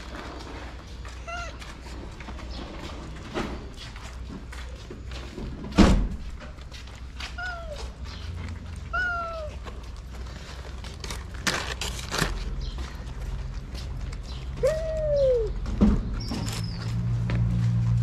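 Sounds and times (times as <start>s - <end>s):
cat meowing: 1.2s - 1.6s, 7.4s - 7.9s, 8.9s - 9.6s.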